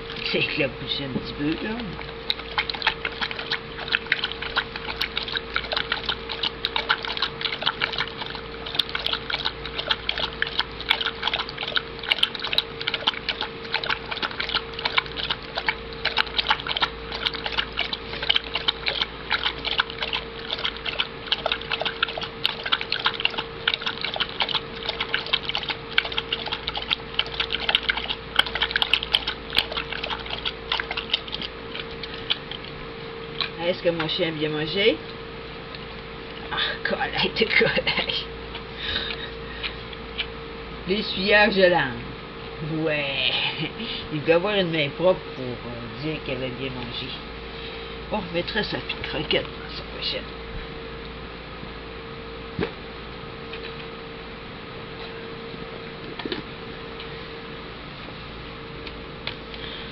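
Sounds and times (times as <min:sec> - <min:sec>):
dog lapping water: 0:00.0 - 0:34.9
steady hum: 0:00.0 - 0:59.9.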